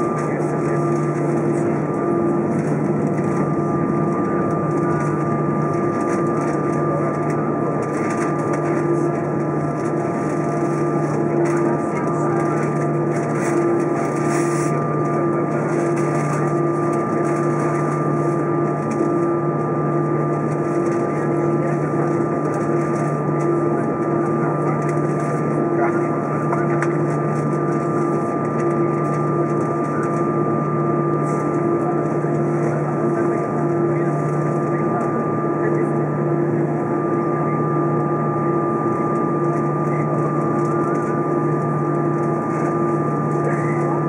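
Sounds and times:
jet engines whining: 0.0s - 44.0s.

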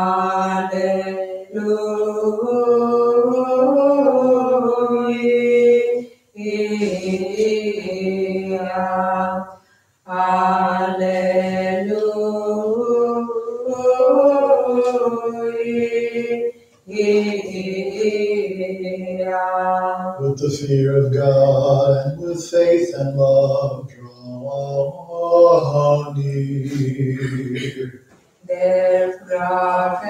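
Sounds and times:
person singing chant: 0.0s - 30.0s.

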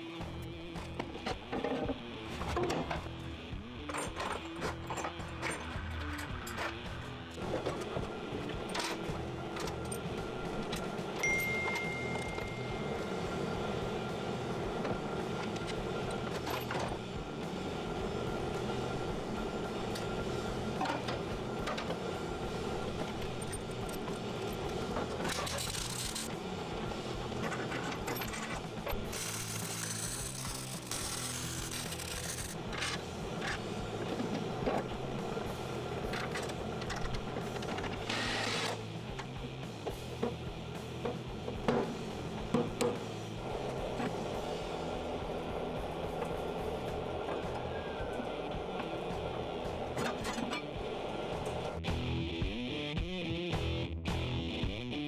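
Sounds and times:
thin high tone: 11.2s - 13.5s
metal parts clinking: 25.2s - 26.3s
welder crackling on steel: 29.1s - 32.6s
music with steady beat: 50.7s - 55.0s.

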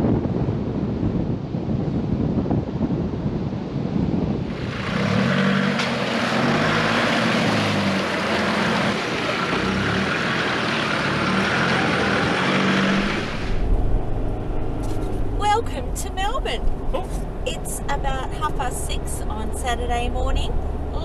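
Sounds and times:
wind: 0.0s - 21.0s
vehicle engine running: 4.4s - 21.0s
water rushing: 4.5s - 14.0s.

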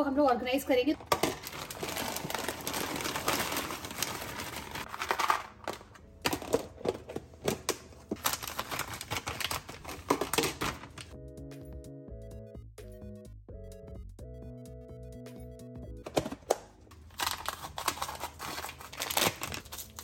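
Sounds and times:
frozen corn rattling into box: 1.0s - 11.1s, 17.1s - 20.0s
plastic packet rustling: 1.0s - 11.2s, 16.1s - 20.0s.

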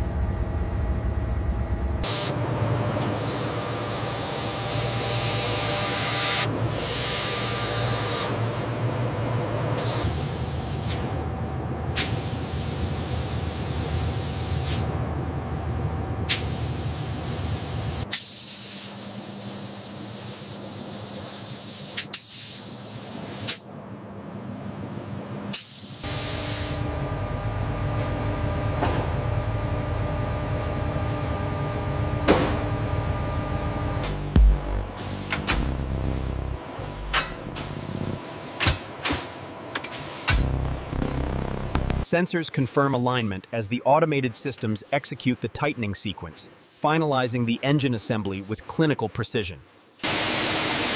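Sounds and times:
low machine hum: 0.0s - 18.1s, 26.1s - 42.1s.

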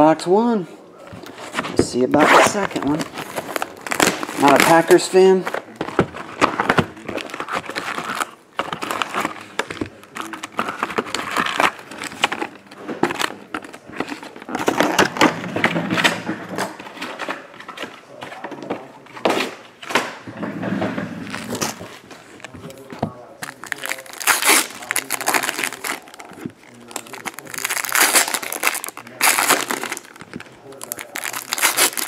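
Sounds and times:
cellophane and foil crinkling: 2.4s - 15.1s, 21.2s - 32.0s.

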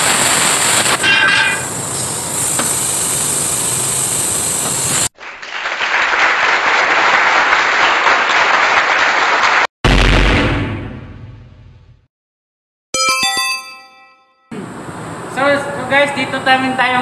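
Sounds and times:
steady machinery hiss: 0.0s - 5.1s
applause sound effect: 5.2s - 9.7s
chime-like musical sting: 13.0s - 14.5s.

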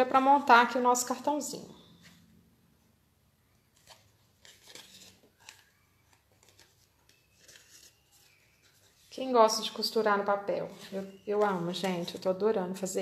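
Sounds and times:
needle and thread through paper: 3.7s - 13.0s.

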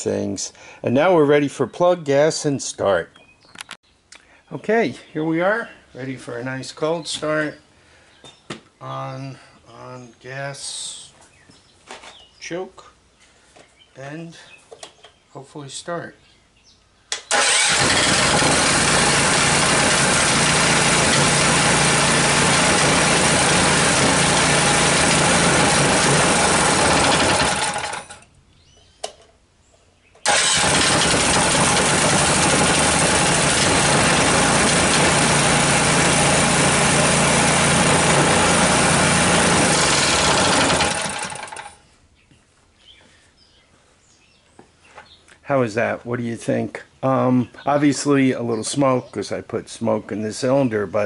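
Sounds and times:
small engine running: 17.3s - 28.2s, 30.3s - 41.8s.

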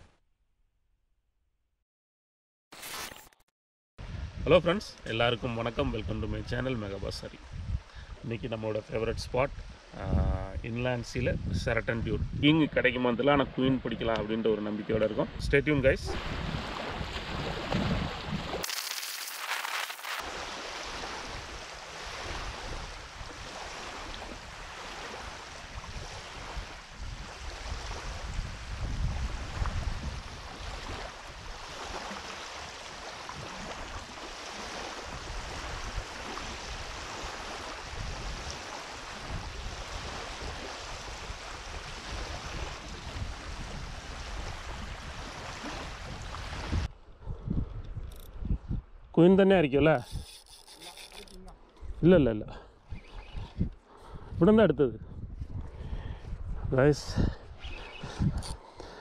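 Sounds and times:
wind buffeting microphone: 4.0s - 4.6s, 5.8s - 8.3s, 9.1s - 13.6s, 15.2s - 18.6s, 20.3s - 32.1s, 33.0s - 49.2s, 51.3s - 58.6s
small waves lapping on shore: 16.1s - 47.0s.

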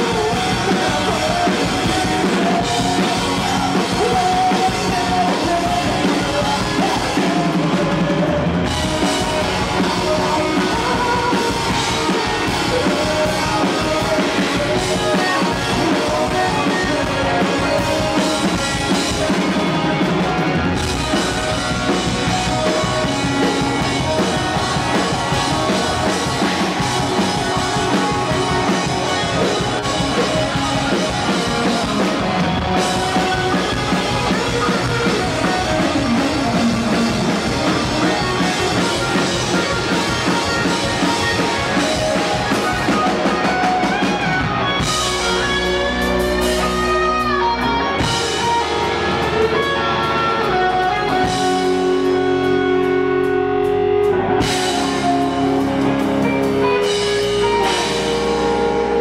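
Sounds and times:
live rock band playing: 0.0s - 59.0s.

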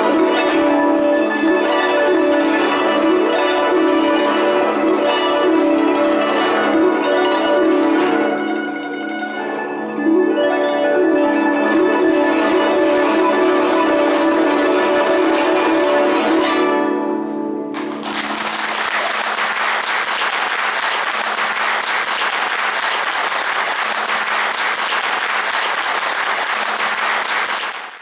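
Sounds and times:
plucked zither notes: 0.0s - 18.2s
audience applause: 17.8s - 28.0s.

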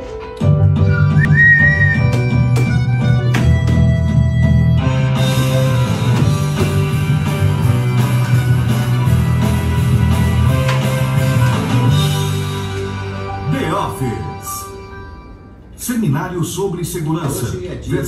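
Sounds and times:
instrumental background music: 0.0s - 15.8s.

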